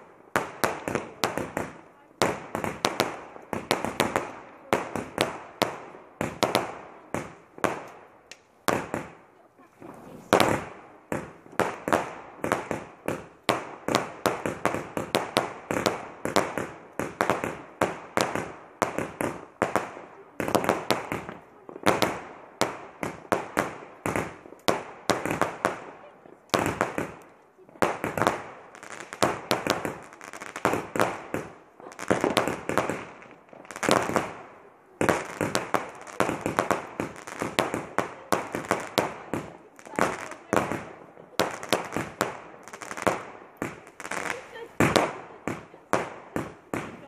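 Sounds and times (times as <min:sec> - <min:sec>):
fireworks bangs with echo: 0:00.0 - 0:47.0.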